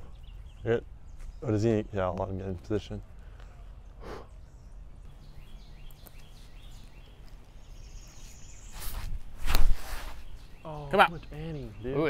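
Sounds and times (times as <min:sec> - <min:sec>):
soft rustle: 0:06.0 - 0:10.6.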